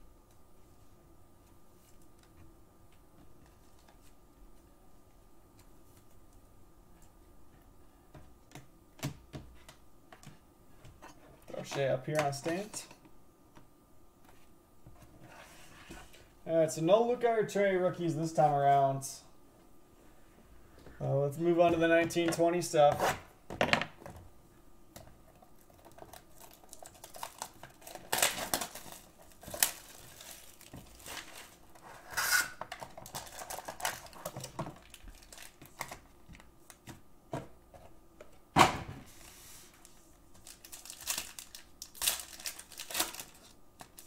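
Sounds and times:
foil packs crinkling: 25.6 - 36.2, 39.7 - 44.0.

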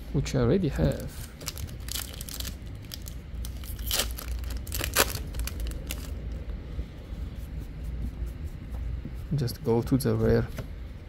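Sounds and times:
wrapper crinkling: 0.9 - 6.2.

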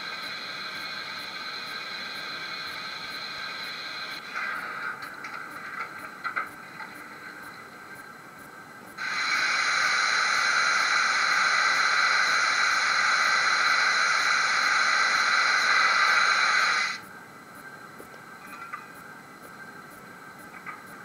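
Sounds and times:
model locomotive steam hiss: 0.0 - 5.2, 8.9 - 17.0.

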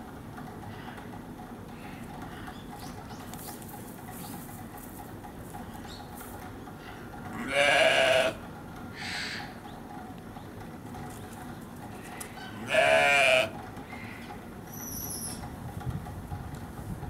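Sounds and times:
sheep bleating: 7.3 - 8.4, 12.5 - 13.6.

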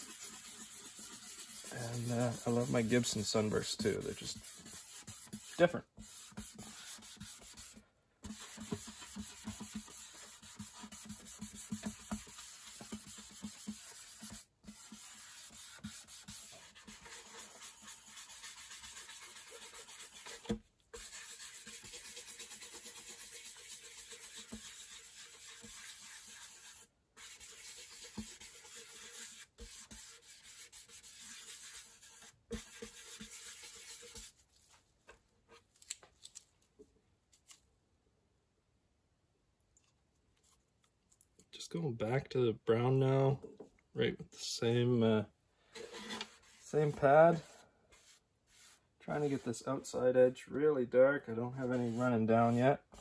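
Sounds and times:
pad scrubbing wood: 0.0 - 34.3, 51.7 - 53.0.

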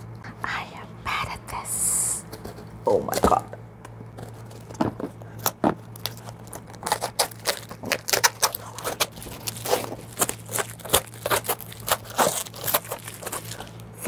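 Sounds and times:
steady low hum: 0.0 - 14.0
cardboard box tearing and scratching: 5.4 - 13.7.

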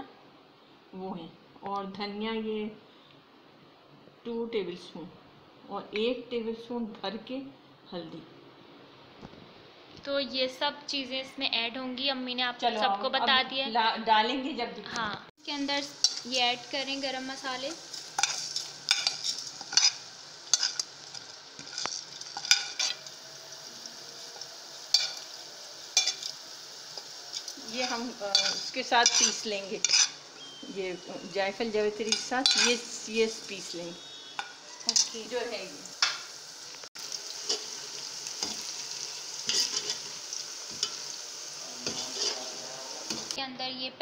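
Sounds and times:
onions sizzling in oil: 15.4 - 43.8
ladle scraping metal pot: 28.3 - 30.2, 39.4 - 41.0, 41.8 - 42.5.

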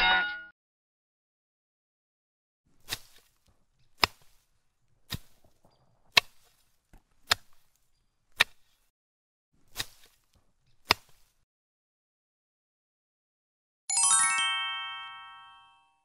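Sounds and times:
plastic knife chopping sand: 2.7 - 8.9, 9.6 - 11.4.

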